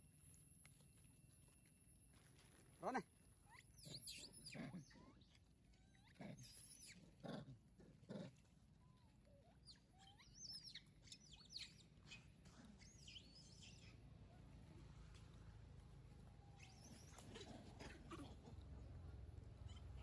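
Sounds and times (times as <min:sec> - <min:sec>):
faint birds chirping: 0:08.4 - 0:20.0.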